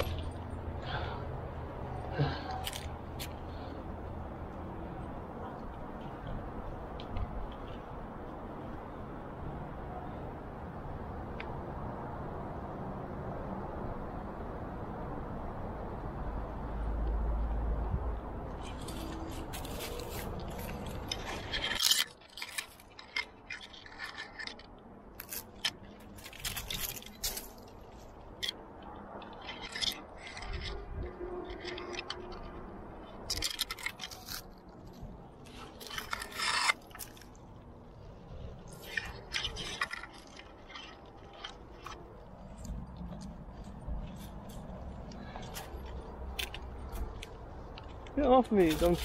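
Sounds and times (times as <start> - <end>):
scraping and rubbing on rock: 0.0 - 1.2, 18.5 - 49.0.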